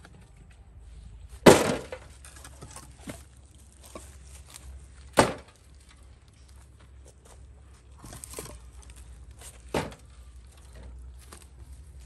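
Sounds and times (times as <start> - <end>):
log dropped into metal wheelbarrow: 1.3 - 6.0, 8.0 - 11.5.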